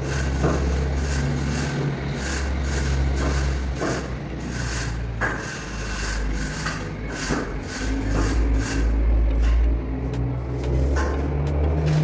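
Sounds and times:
screed rule scraping sand mix: 0.0s - 9.1s.

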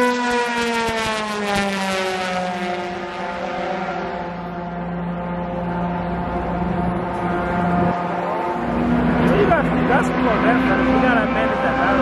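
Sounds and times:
race car engine passing by: 0.0s - 12.0s.

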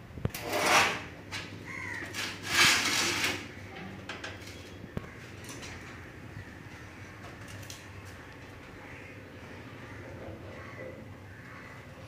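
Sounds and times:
metal case scraping on concrete: 0.3s - 3.6s.

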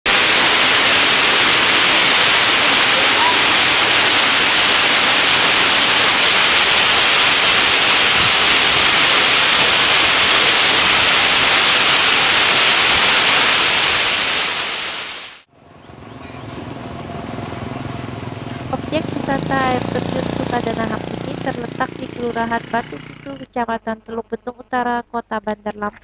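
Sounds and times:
waterfall rushing onto rock: 0.1s - 15.5s
roadside ambience: 15.4s - 23.6s
low engine hum: 15.6s - 23.5s.

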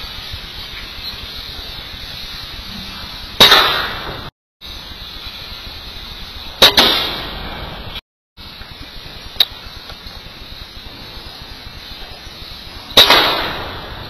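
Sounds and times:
steady hiss: 0.0s - 14.0s
air rifle shot: 3.4s - 4.3s, 6.6s - 7.5s, 12.9s - 14.0s.

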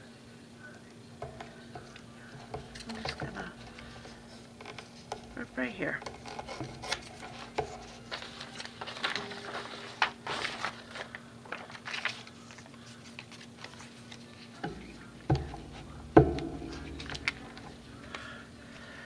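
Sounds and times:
paper rustling and crinkling: 2.4s - 18.3s
knocks on table: 14.7s - 17.8s.

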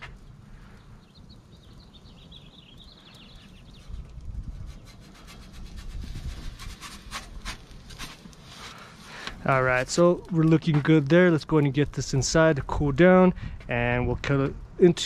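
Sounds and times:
bird chirping: 0.6s - 5.0s
metal peel scraping on stone: 4.5s - 8.9s.

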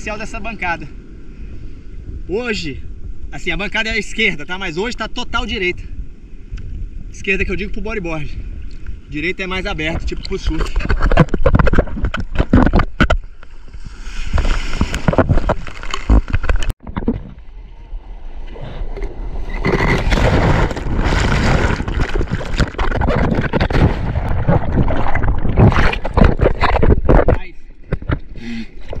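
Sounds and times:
sea water splashing and rushing: 10.0s - 16.9s, 17.5s - 28.1s.

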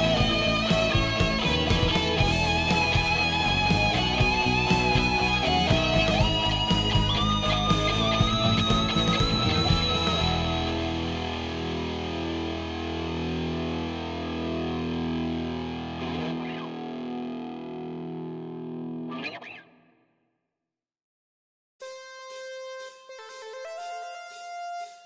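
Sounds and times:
distorted electric guitar chord: 0.0s - 19.4s.

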